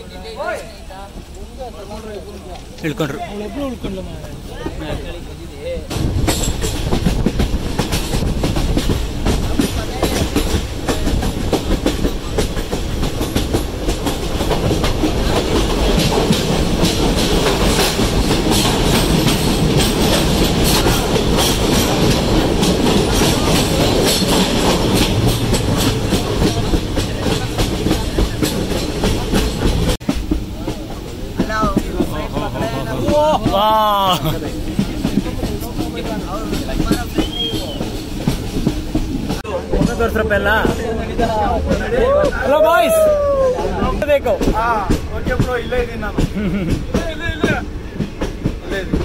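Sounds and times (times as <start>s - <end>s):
train rumble: 0.0s - 49.0s
wheels clattering over rail joints: 0.3s - 33.6s, 34.4s - 43.1s.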